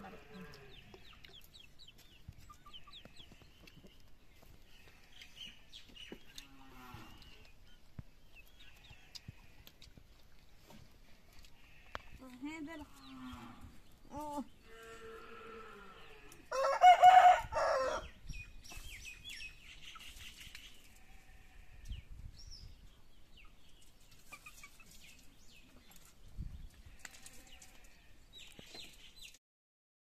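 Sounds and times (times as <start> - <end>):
rooster crowing: 16.5 - 18.1.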